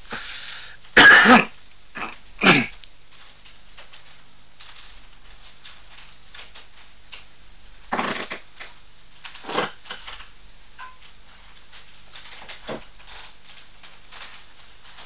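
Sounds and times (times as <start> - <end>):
man coughing hard: 1.0 - 2.8.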